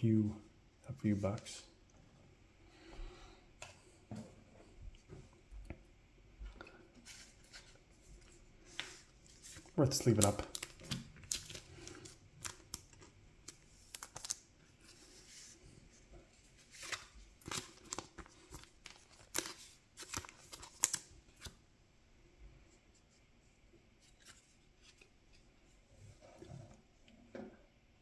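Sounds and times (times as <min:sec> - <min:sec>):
plastic card sleeve crinkling: 0:07.0 - 0:15.1, 0:16.6 - 0:21.6.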